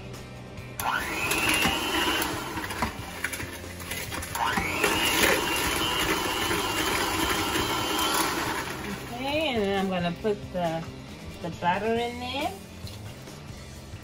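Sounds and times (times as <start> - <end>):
electric mixer whining: 0.8 - 9.4.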